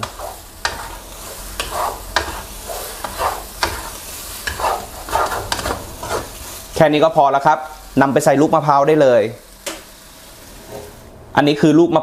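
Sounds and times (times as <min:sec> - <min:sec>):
wooden spatula scraping a wok: 0:00.0 - 0:06.9, 0:10.4 - 0:11.1
sauce sizzling: 0:00.0 - 0:11.4.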